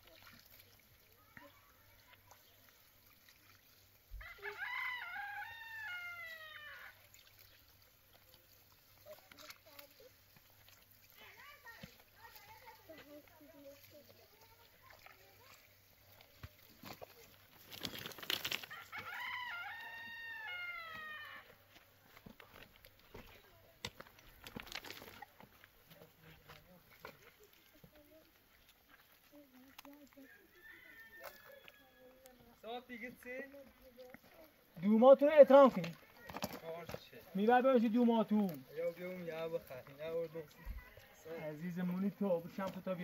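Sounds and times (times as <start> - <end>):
rooster crowing: 4.2 - 7.0, 18.6 - 21.6, 30.3 - 32.3.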